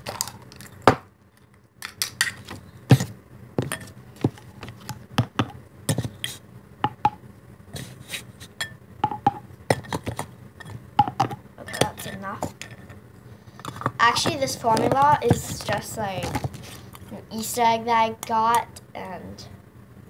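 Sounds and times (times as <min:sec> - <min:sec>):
plastic toys clicking and tapping: 0:13.6 - 0:16.6.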